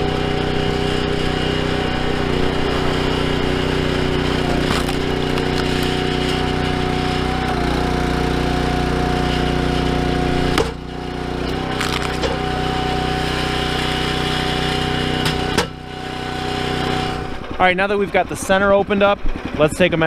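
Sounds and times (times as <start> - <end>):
hydraulic whine: 0.0 - 20.0
log splitter engine running: 0.0 - 20.0
sharp knocks: 10.5 - 10.8, 15.2 - 15.8.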